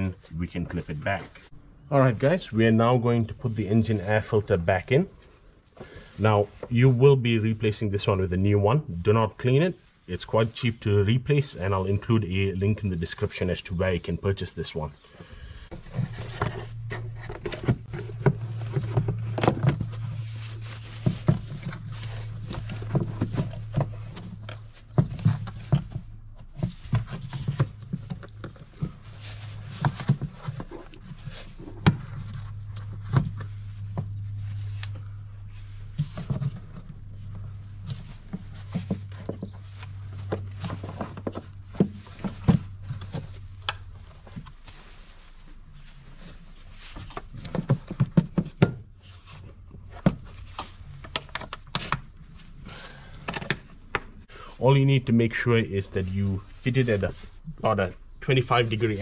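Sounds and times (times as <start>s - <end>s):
steady low hum: 0.1s - 59.0s
scraping rustle: 15.6s - 59.0s.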